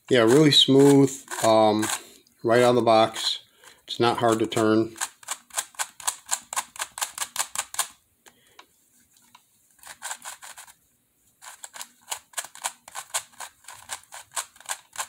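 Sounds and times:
puzzle faces clicking: 4.2s - 8.0s.

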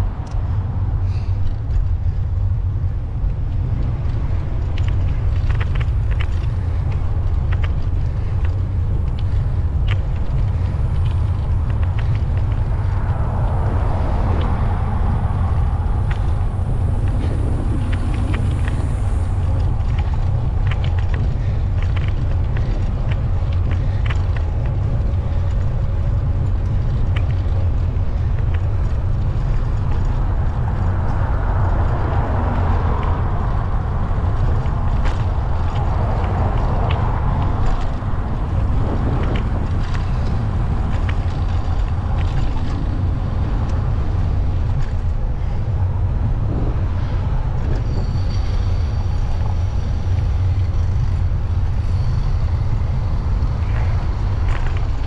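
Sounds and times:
motor traffic: 0.0s - 55.0s
wind and road rumble: 0.0s - 55.0s
vehicle passing: 10.6s - 21.6s, 28.1s - 55.0s.

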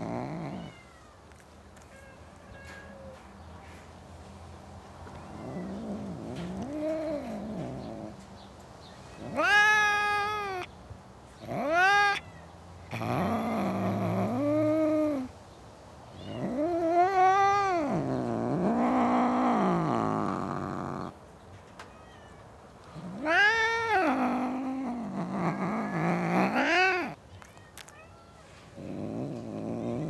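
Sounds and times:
cats yowling: 0.0s - 1.2s, 5.0s - 8.2s, 9.0s - 10.7s, 11.4s - 15.3s, 16.1s - 21.2s, 21.8s - 27.2s.

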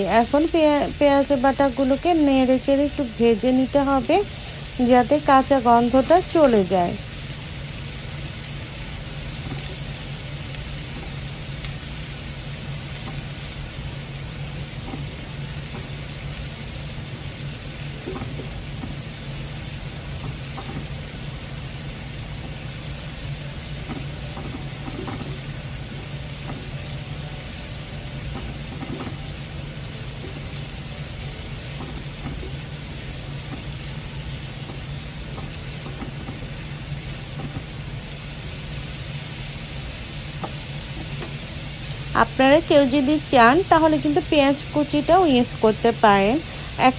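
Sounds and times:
onion paste sizzling in oil: 0.0s - 46.9s
spatula stirring in pan: 7.0s - 38.8s.

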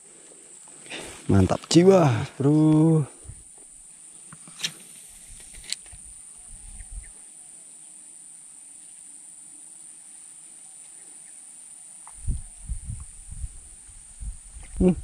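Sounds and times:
high-pitched insect drone: 1.8s - 9.9s.

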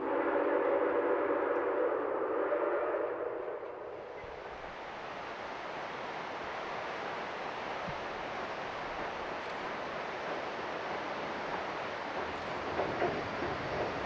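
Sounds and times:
river rapids rushing: 4.2s - 14.0s.

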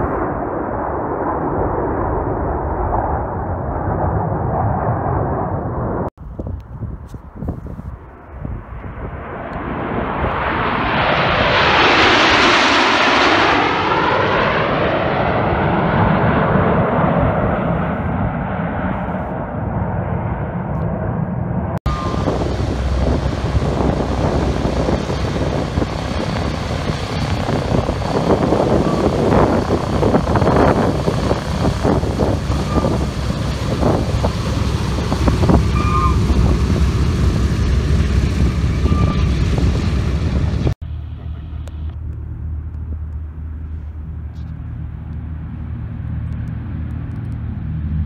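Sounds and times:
radial aircraft engines running: 8.3s - 48.0s
short high squeaks: 38.6s - 39.4s.

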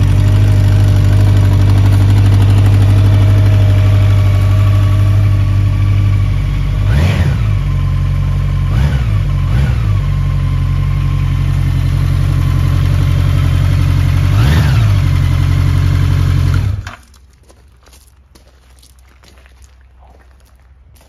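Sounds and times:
motorcycle engine idling and revving: 0.0s - 17.4s.

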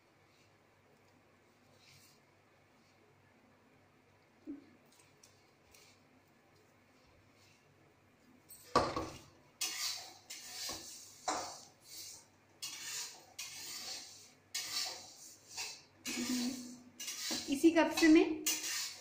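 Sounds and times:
fingers scraping powder on metal plate: 9.6s - 17.6s, 18.5s - 19.0s.

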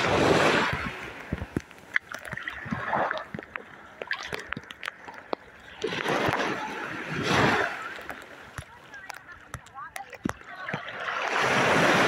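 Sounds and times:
surf washing over sand: 0.0s - 5.0s, 5.7s - 12.0s
sharp taps and clicks: 8.0s - 10.8s.

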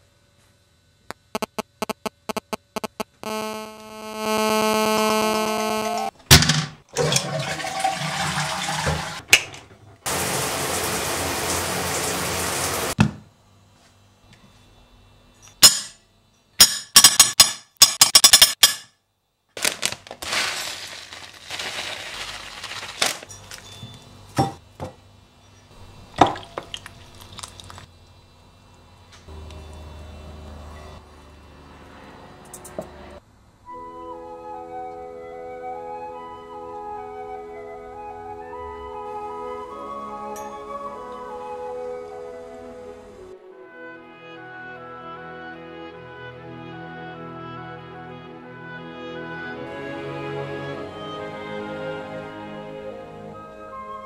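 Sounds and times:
steady buzzing tone: 0.8s - 6.3s
rushing water-like noise: 10.1s - 13.0s.

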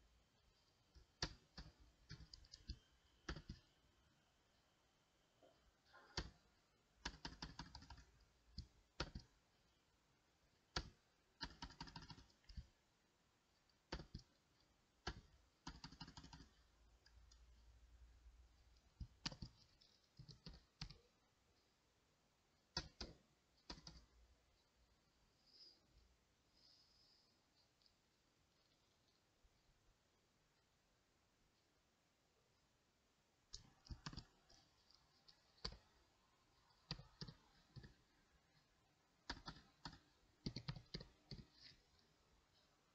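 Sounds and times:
computer keyboard typing: 0.9s - 3.8s, 5.9s - 9.4s, 10.7s - 12.8s, 13.7s - 17.5s, 18.8s - 21.1s, 22.7s - 24.1s, 33.5s - 36.0s, 36.6s - 38.1s, 39.2s - 41.8s.

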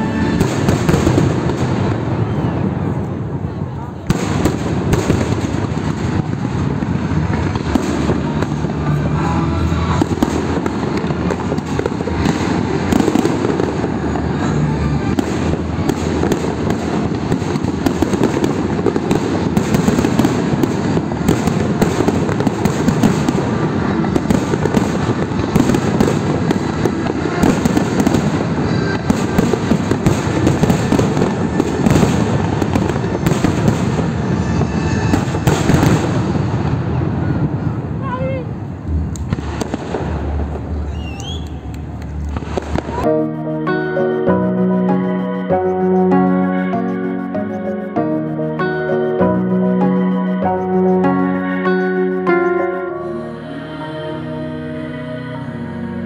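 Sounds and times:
firework bursts and crackling: 0.0s - 43.2s.

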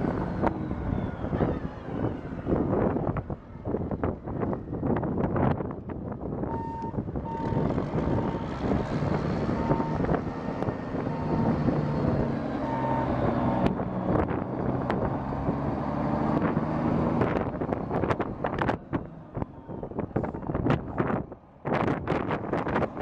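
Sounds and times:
diesel truck engine running: 0.0s - 23.0s
reversing alarm beeping: 6.5s - 8.4s, 9.4s - 10.2s.

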